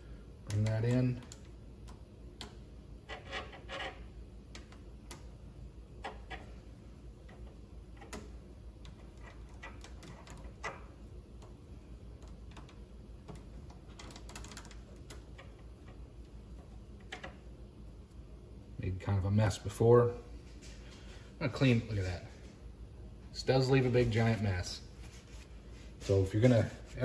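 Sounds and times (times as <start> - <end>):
low steady hum: 0.0 - 27.0.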